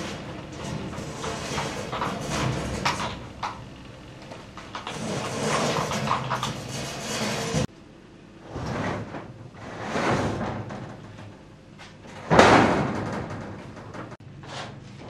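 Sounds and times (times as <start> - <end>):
steel sheets scraping over metal: 0.0 - 3.6, 4.5 - 7.7, 8.5 - 11.0.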